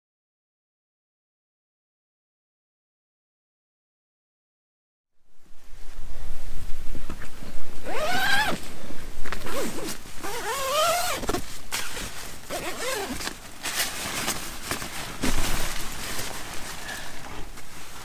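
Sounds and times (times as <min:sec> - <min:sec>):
nylon tent fabric rustling: 0:07.7 - 0:18.0
zip rasps: 0:07.8 - 0:08.6, 0:09.4 - 0:13.3.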